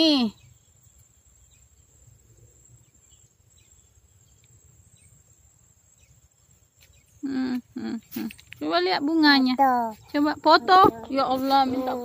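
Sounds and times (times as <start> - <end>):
insects droning: 0.0 - 12.0
woman speaking: 7.2 - 12.0.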